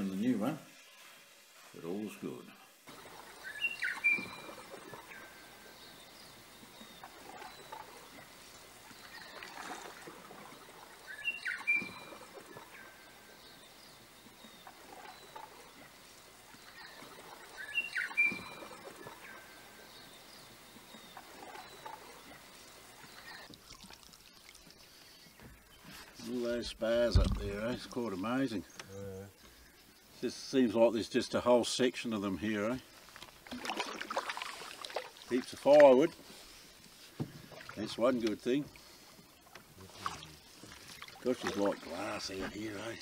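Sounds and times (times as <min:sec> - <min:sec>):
canoe paddles dipping in water: 0:02.9 - 0:28.1, 0:32.8 - 0:43.0
whistled bird call: 0:03.4 - 0:05.3, 0:11.0 - 0:12.2, 0:16.8 - 0:19.4.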